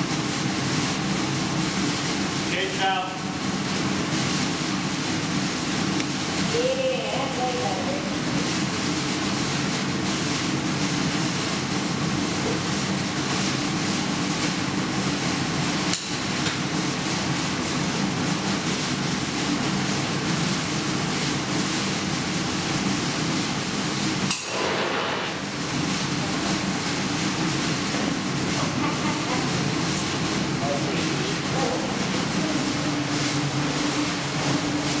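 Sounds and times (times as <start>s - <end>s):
metal foundry industrial noise: 13.6s - 35.0s.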